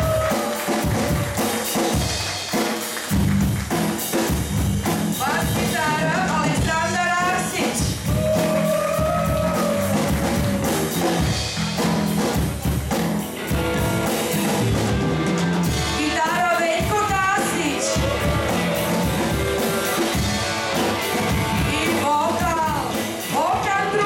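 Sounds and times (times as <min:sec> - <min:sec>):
drum kit beat: 0:00.0 - 0:24.0
rock band playing live: 0:00.0 - 0:24.0
person singing: 0:15.9 - 0:20.1.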